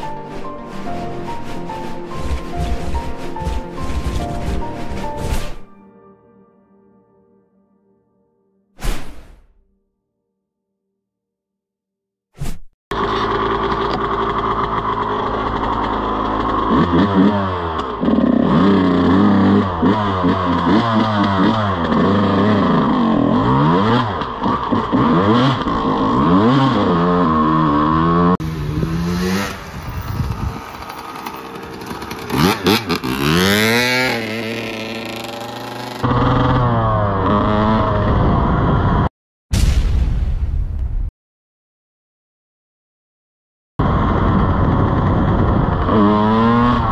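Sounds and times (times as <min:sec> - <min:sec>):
dirt bike engine revving: 0:12.9 - 0:39.1, 0:43.8 - 0:46.9.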